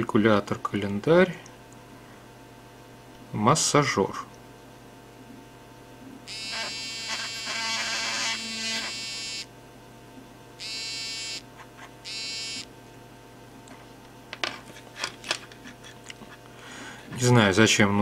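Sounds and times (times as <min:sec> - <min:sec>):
vibration motor buzzing: 0:06.3 - 0:09.5, 0:10.6 - 0:12.7.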